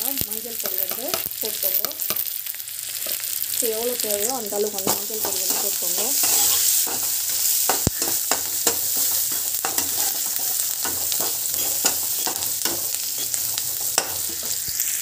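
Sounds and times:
onions sizzling in oil: 0.0s - 15.0s
spatula scraping and knocking pan: 4.8s - 14.8s.

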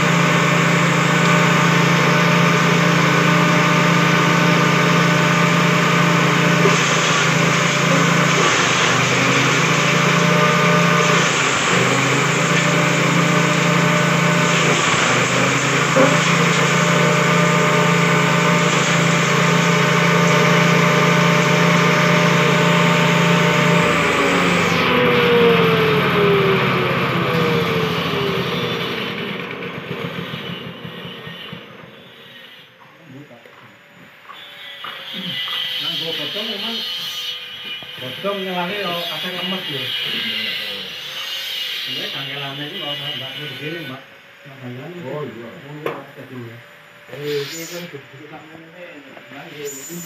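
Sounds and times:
small petrol engine running: 0.0s - 32.6s.

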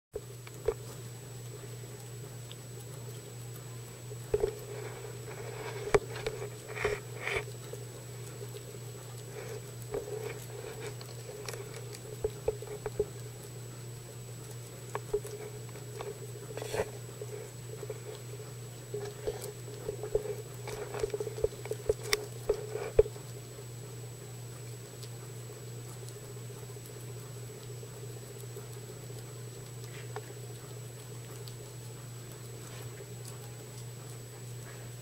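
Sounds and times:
guinea pigs chewing greens: 0.2s - 35.0s
small clicks and rustles: 0.2s - 35.0s
steady low hum: 0.2s - 35.0s.

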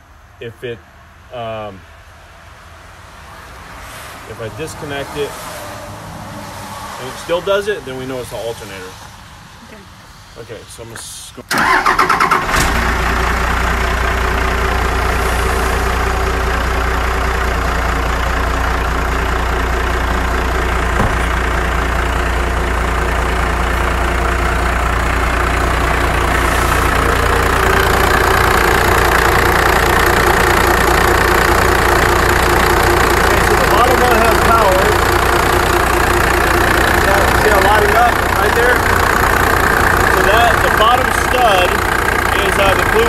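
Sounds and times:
diesel engine starting and idling: 11.4s - 43.0s.

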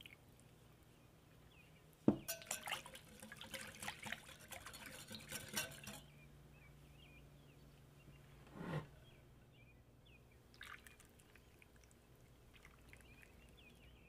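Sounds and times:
liquid sloshing: 2.1s - 6.1s, 10.5s - 13.8s
whisk clinking against glass jug: 2.1s - 6.1s.

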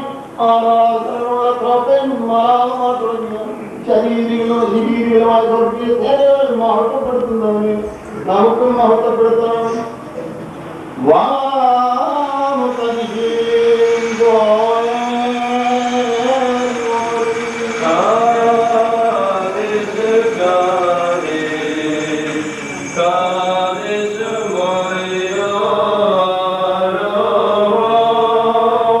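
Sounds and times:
voices singing slow chant: 11.0s - 29.0s.

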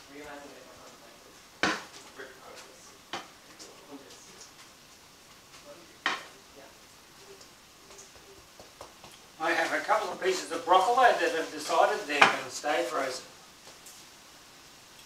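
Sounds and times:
faint sizzle: 0.0s - 15.0s
wooden spoon knocking on pan: 1.6s - 2.0s, 6.0s - 6.3s, 12.2s - 12.4s
spoon scraping pan: 9.5s - 12.9s.

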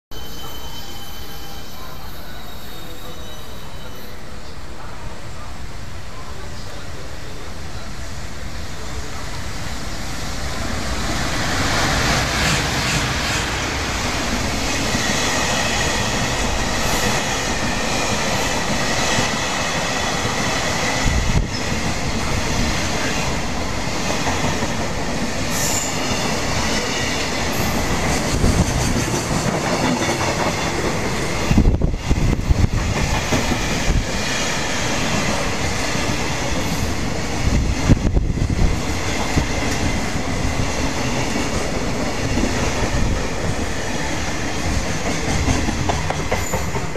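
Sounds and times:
high ringing tone: 0.1s - 4.3s
freight train passing: 0.1s - 46.9s
wheels clattering on rail: 41.0s - 46.9s.

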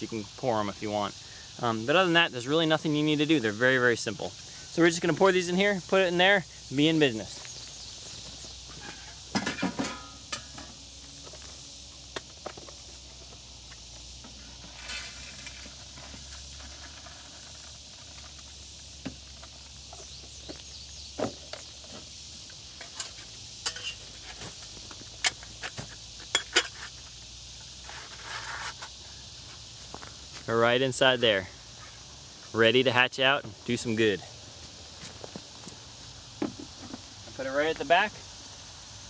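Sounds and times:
high insect chirr: 0.0s - 39.0s
footsteps: 29.4s - 32.6s, 34.3s - 37.1s.

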